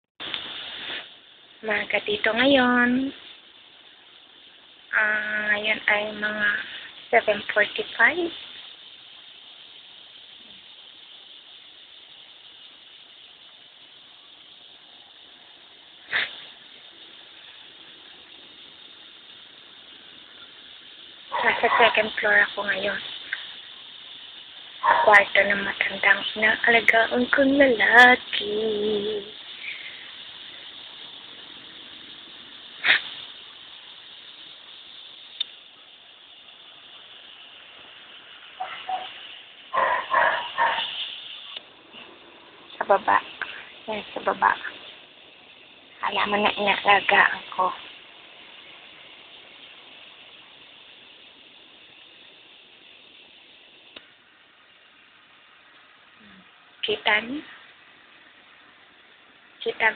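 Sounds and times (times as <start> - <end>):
outdoor background hiss: 0.0 - 59.9
faint tick: 53.9 - 54.1.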